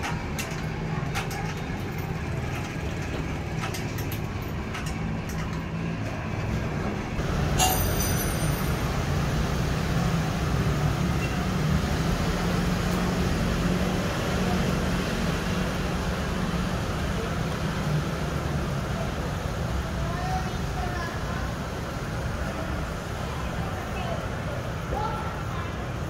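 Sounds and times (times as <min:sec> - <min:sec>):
gear mechanism rumbling: 0:00.0 - 0:09.0.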